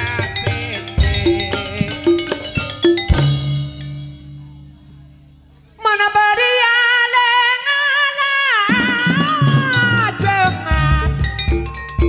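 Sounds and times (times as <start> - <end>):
drum strokes: 0.0 - 5.1, 8.7 - 12.0
metallophone notes: 0.0 - 5.8, 8.7 - 12.0.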